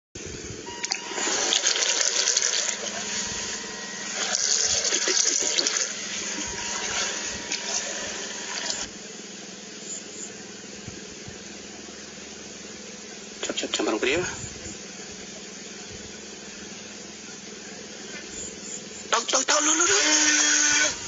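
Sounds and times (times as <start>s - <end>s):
water splashing around toy boat: 1.0s - 2.9s.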